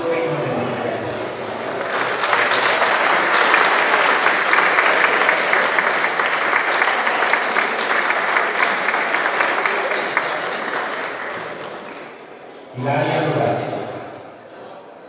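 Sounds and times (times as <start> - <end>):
audience applauding: 1.4 - 12.3.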